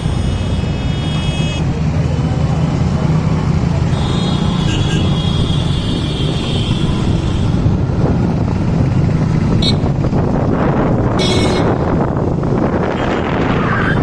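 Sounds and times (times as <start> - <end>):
traffic and road rumble: 0.0 - 14.0.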